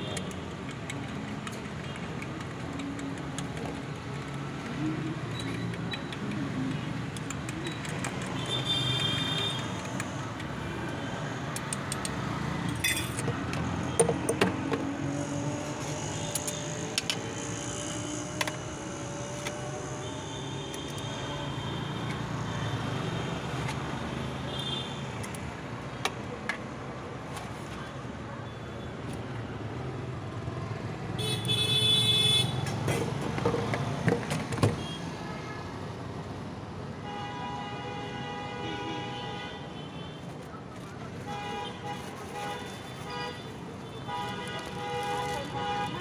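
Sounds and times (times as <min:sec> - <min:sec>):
traffic rumble: 0:00.0 - 0:37.1, 0:39.1 - 0:46.0
car horns honking: 0:31.2 - 0:32.6.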